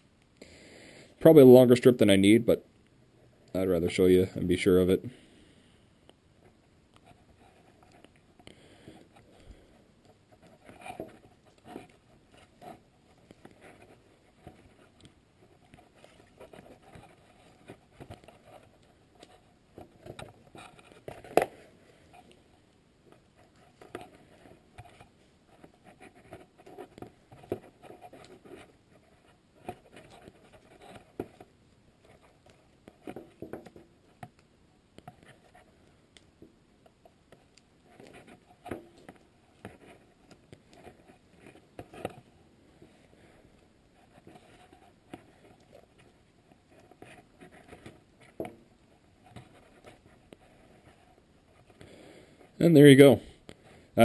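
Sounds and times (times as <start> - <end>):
tape and wires rustling: 6.0 - 54.0.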